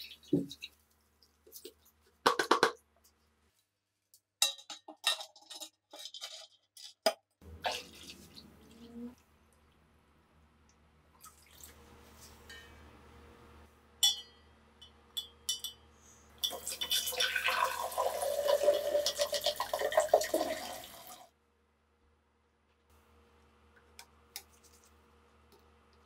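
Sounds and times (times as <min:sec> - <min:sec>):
water pouring and splashing: 0:07.6 - 0:09.0, 0:11.2 - 0:11.9, 0:16.5 - 0:21.2.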